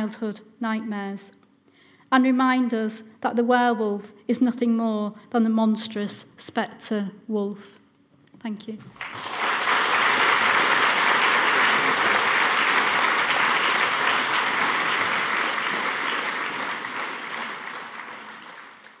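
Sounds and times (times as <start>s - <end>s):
audience applauding: 8.9s - 19.0s.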